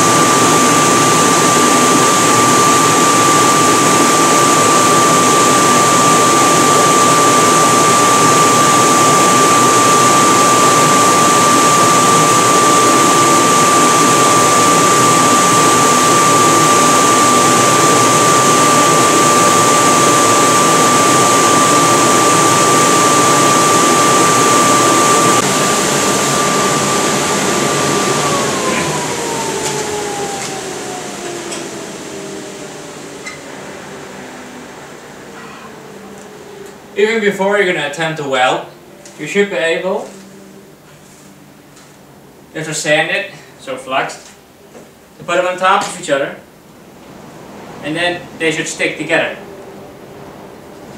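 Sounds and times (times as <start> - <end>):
electric air blower whining: 0.0 - 37.3.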